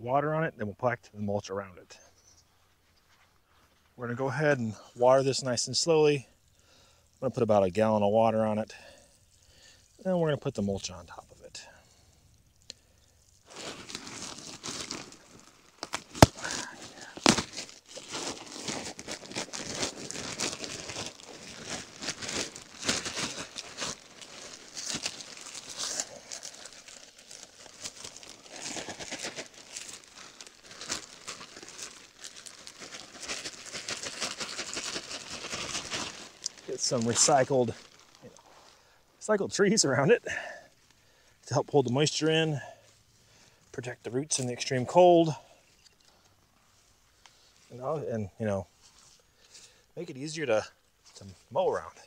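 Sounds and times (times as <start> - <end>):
mulch crackling and rustling: 13.1 - 38.8.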